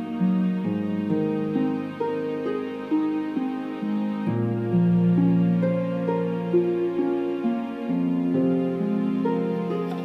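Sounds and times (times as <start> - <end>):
slow gentle keyboard music: 0.0 - 10.0.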